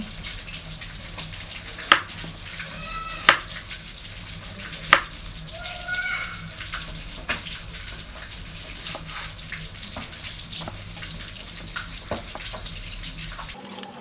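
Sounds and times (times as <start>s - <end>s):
fish sizzling in oil: 0.0s - 14.0s
knife knocking on cutting board: 3.2s - 3.5s.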